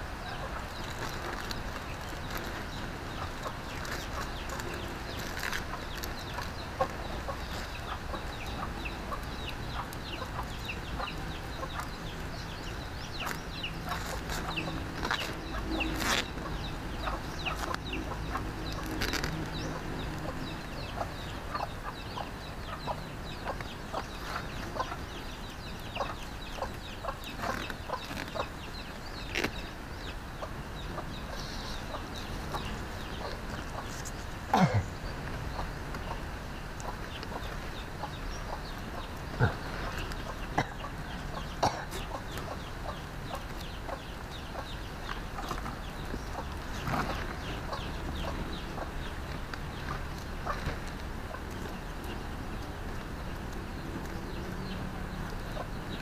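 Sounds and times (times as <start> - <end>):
chickens clucking: 0.0 - 56.0
leaf strips rustling: 0.4 - 20.7, 27.2 - 29.9.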